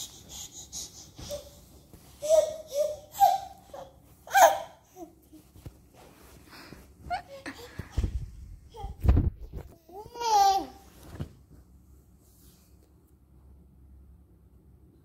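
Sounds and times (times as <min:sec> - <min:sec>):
baby laughing and babbling: 0:00.0 - 0:05.5, 0:08.6 - 0:10.9.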